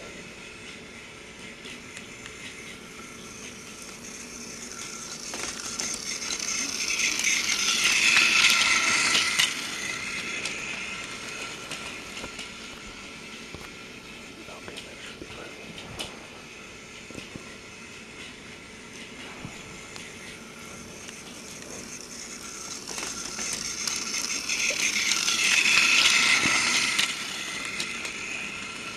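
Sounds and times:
toy train motor whine: 0.0 - 28.9
wheels clicking over track: 1.4 - 13.8, 18.2 - 28.9.

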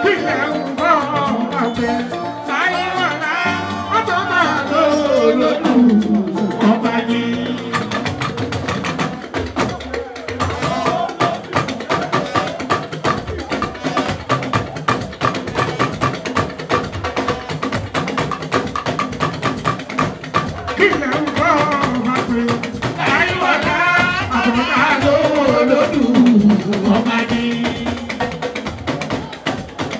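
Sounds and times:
person singing: 0.0 - 8.4, 20.5 - 29.9
electric guitar: 0.0 - 9.7
percussion groove: 0.0 - 29.9.

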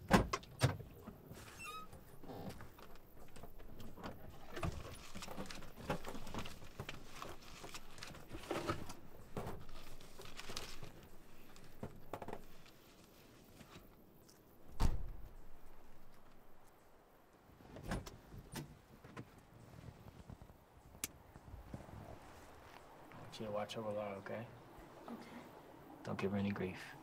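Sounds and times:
papers rustling: 2.6 - 13.9
loud thump: 14.7 - 15.4.

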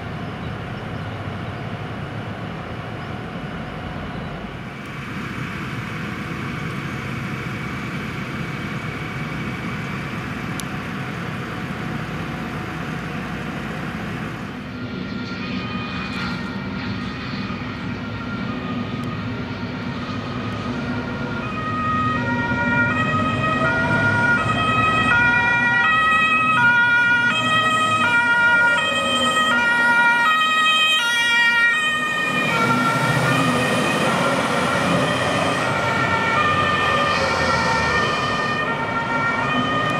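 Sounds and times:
diesel engines running: 0.0 - 39.9
two-tone siren: 14.6 - 39.9.

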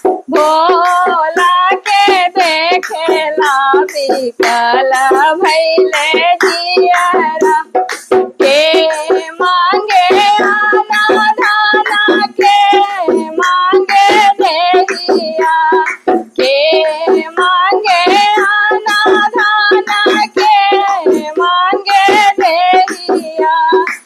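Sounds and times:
hand drum strokes: 0.0 - 24.0
woman singing devotional song: 0.3 - 7.8, 8.4 - 24.0.

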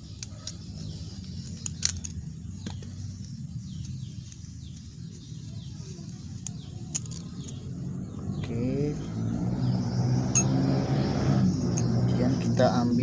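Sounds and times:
small birds chirping: 0.0 - 13.0
screwdriver and plastic parts clicking: 0.1 - 2.8.

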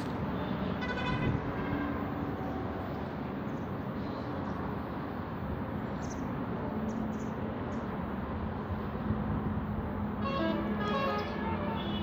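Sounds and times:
distant traffic: 0.0 - 12.0
small birds chirping: 5.9 - 6.3.

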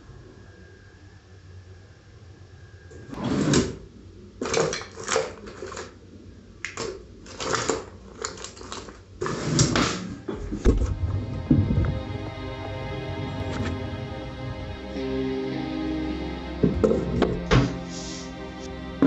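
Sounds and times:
small objects clattering: 4.4 - 6.0, 6.7 - 9.4
rustling of packets and papers: 4.4 - 10.7.

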